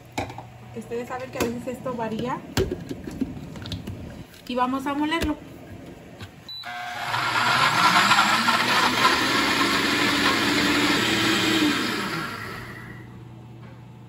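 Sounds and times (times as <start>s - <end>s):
blender motor running: 6.6s - 13.1s.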